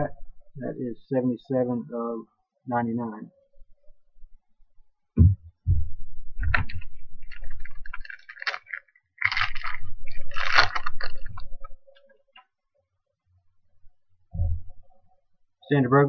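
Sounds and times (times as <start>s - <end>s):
foil wrapper crinkling and tearing: 6.5s - 12.0s.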